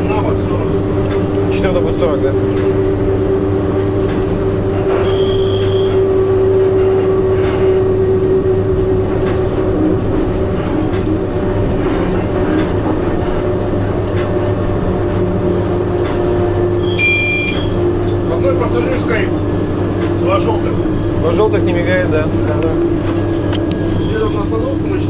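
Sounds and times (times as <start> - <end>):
electrical hum: 0.0 - 25.0
train running rumble: 0.0 - 25.0
high beep: 16.9 - 17.8.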